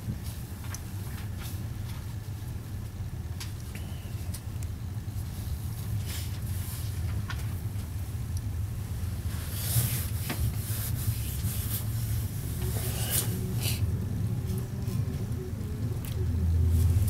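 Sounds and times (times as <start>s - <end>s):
train rumbling: 4.9s - 17.0s.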